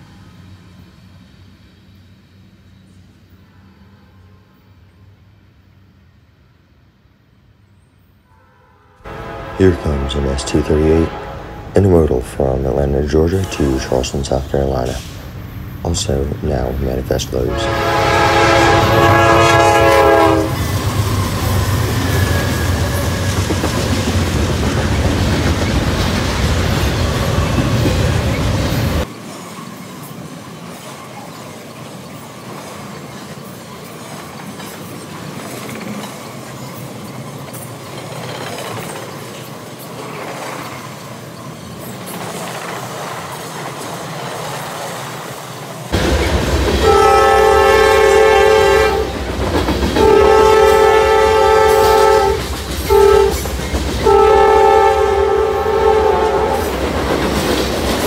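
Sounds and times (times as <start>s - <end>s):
train horn blasts: 8.2s - 15.0s, 17.4s - 20.8s, 46.8s - 49.2s, 49.9s - 56.8s
diesel locomotive rumble: 9.1s - 29.1s, 45.9s - 58.0s
train cars rolling over rails: 9.1s - 58.0s.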